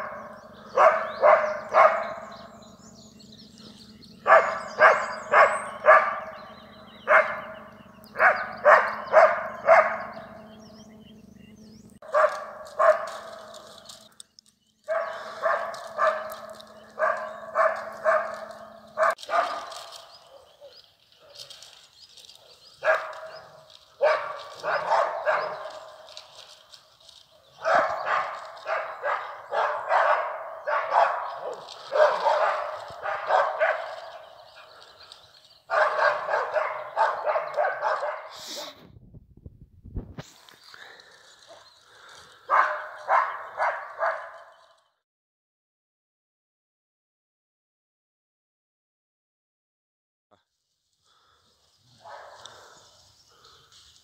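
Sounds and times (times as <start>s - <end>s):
dogs barking: 0.0s - 11.2s, 12.0s - 14.0s, 14.8s - 38.8s, 40.8s - 44.8s, 51.1s - 54.0s
low steady hum: 0.0s - 37.0s.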